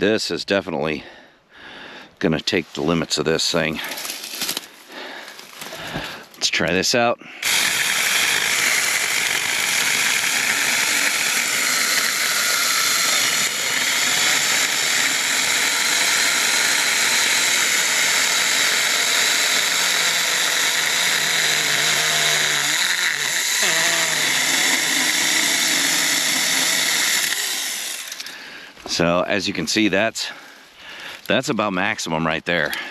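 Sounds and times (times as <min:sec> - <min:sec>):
electric chainsaw cutting log: 0:07.4 - 0:28.3.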